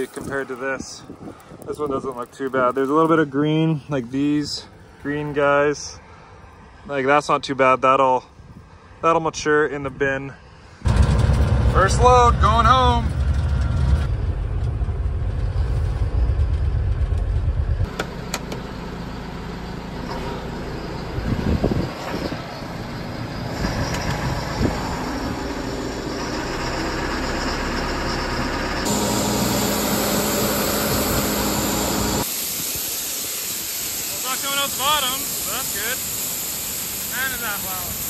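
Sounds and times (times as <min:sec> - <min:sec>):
heavy vehicle engine rumble: 0:10.8 - 0:38.0
grain conveyor running: 0:24.6 - 0:38.0
grain pouring hiss: 0:28.9 - 0:38.0.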